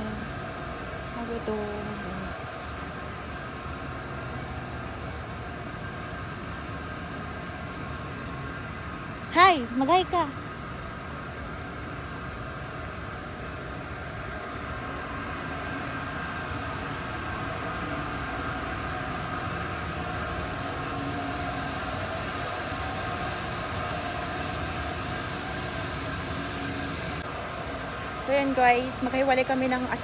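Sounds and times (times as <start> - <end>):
factory machinery hum: 0.0 - 30.0.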